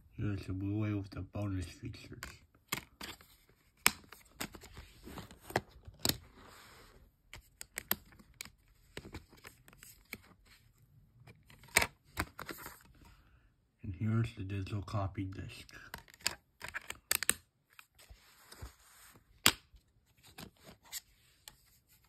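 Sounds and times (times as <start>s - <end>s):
plastic disc case clicks and scrapes: 2.2s - 6.6s, 7.3s - 13.1s, 15.7s - 22.0s.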